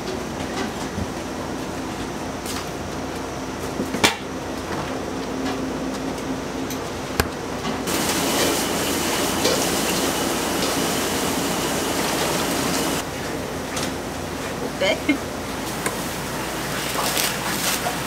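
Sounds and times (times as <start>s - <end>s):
pot hissing on a burner: 7.9s - 13.0s.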